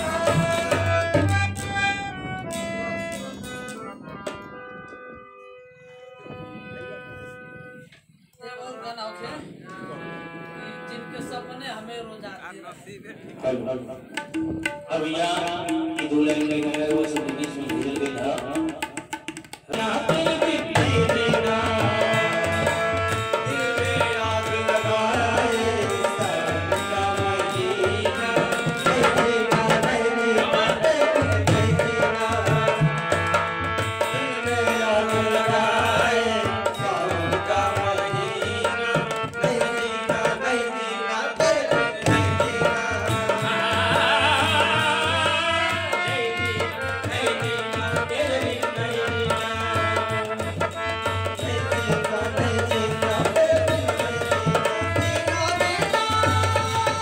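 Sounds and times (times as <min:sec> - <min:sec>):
melody over hand-drum beat: 0:00.0 - 0:05.3, 0:14.0 - 0:40.6, 0:41.4 - 0:57.0.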